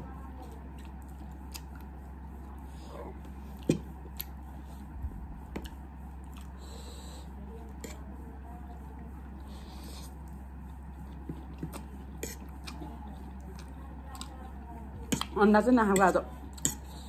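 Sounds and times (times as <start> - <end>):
chewing: 0.4 - 2.2, 2.8 - 4.4, 5.6 - 6.6, 10.2 - 17.0
fork scraping ceramic plate: 12.2 - 12.5.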